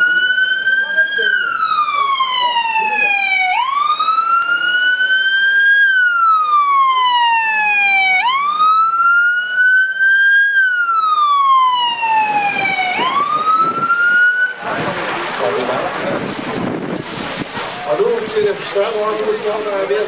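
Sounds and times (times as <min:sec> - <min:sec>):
fire engine siren wailing: 0:00.0 - 0:15.1.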